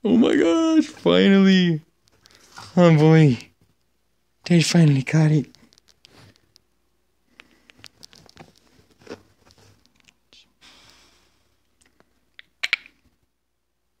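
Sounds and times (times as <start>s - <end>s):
phone handling clicks and rustles: 7.4s - 10.1s.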